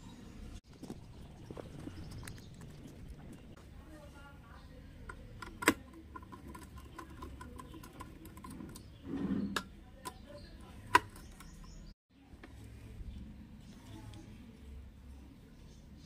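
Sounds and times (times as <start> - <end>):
dull scrape: 8.3 - 9.7.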